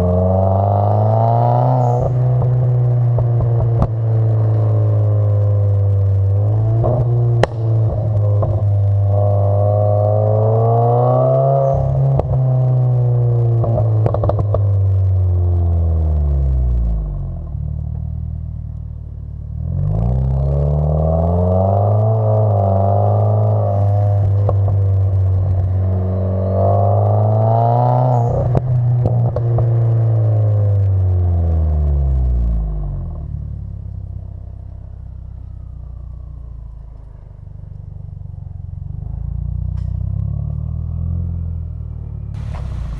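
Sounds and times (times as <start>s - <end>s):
car exhaust drone: 0.0s - 42.9s
exhaust cracks: 1.0s - 19.6s, 42.0s - 42.9s
exhaust pops: 2.1s - 4.8s, 5.8s - 9.4s, 13.6s - 14.9s, 42.4s - 42.9s.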